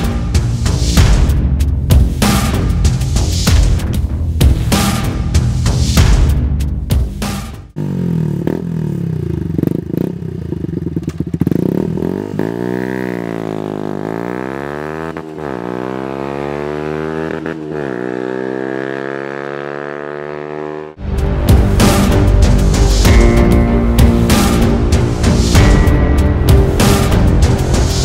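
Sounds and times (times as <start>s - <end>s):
music: 0.0s - 7.8s, 21.0s - 28.0s
motorcycle engine accelerating: 7.6s - 22.6s.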